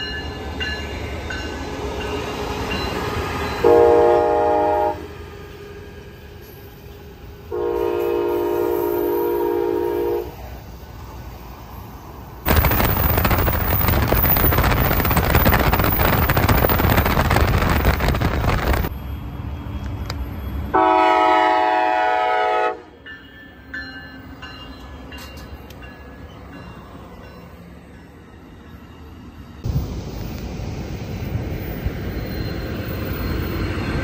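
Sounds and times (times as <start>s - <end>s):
passing train rumble: 0.0s - 34.0s
train horn blast: 3.6s - 5.3s, 7.4s - 10.4s, 20.7s - 23.0s.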